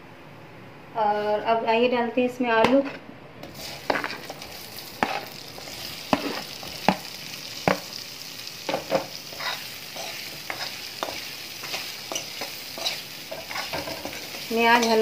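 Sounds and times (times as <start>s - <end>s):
potatoes sizzling in oil: 3.4s - 15.0s
metal spoon scraping pan: 8.9s - 15.0s
spoon clinking against pan: 10.5s - 14.1s.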